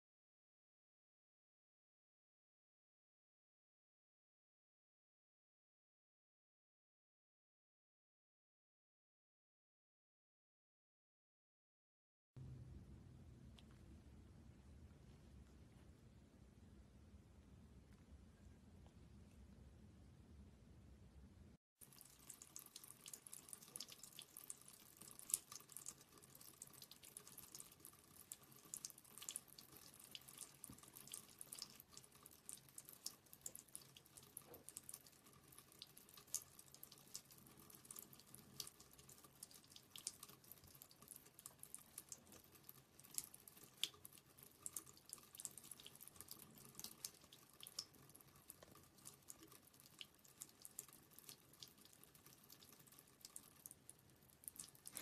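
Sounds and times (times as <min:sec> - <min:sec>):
cat lapping water: 0:21.8 - 0:55.0.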